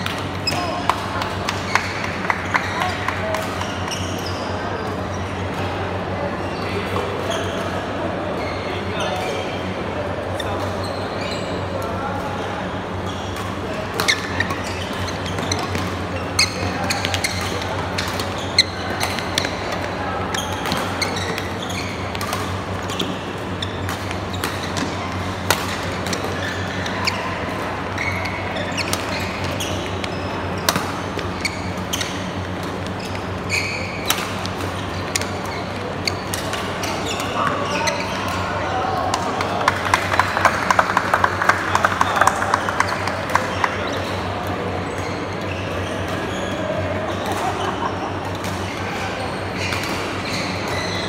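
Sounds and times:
shoe squeaks on court: 1.6s - 5.5s, 6.5s - 9.7s, 10.3s - 38.6s, 41.8s - 51.0s
rackets striking shuttlecock: 34.0s - 35.5s.

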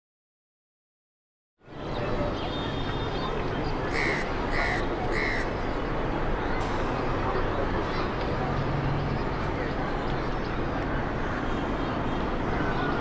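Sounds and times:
crow cawing: 3.9s - 5.5s.

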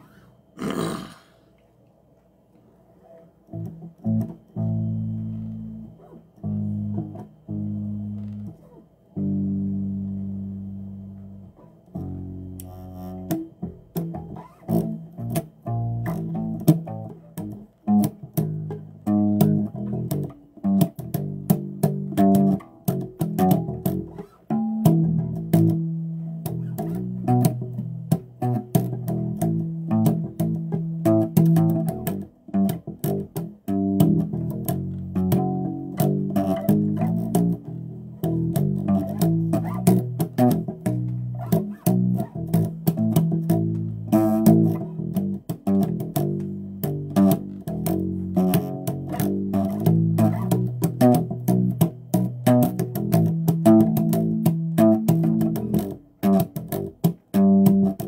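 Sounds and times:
plucked electric bass guitar: 3.4s - 58.0s.

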